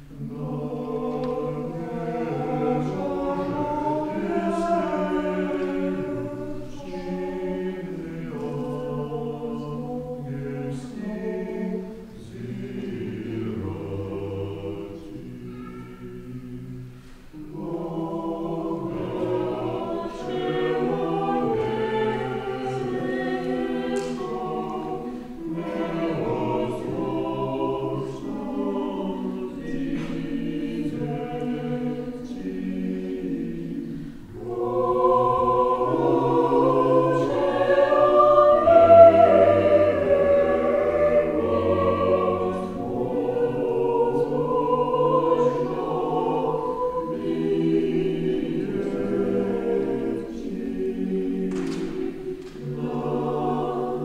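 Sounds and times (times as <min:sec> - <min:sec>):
choir singing a cappella chant: 0:00.0 - 0:54.0.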